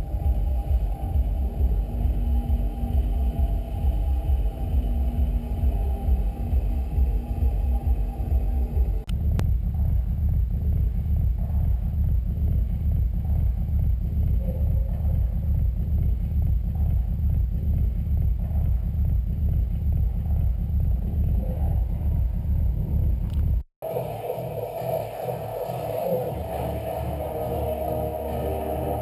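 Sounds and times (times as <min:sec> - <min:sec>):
car engine and road noise: 0:00.0 - 0:14.3.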